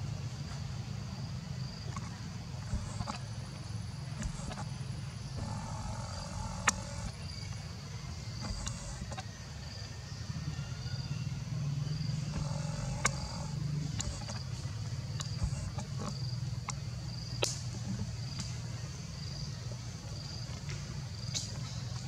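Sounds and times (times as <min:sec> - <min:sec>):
rustles: 0:00.0 - 0:10.6, 0:11.3 - 0:22.0
insect chirping: 0:00.0 - 0:22.0
sharp clicks: 0:05.4 - 0:07.3, 0:08.4 - 0:09.2, 0:12.3 - 0:14.4, 0:15.1 - 0:16.8.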